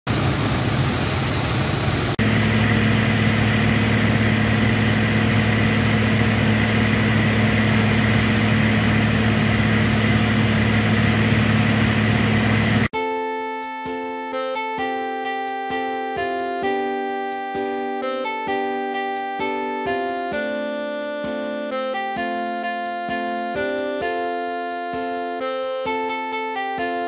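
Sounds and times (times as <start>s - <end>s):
drilling rig engine hum: 0.0s - 12.9s
hissing drilling noise: 0.1s - 12.9s.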